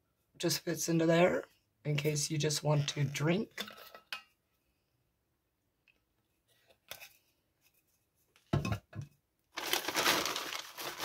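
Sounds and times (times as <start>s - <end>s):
plastic bag crinkling: 9.6s - 11.0s.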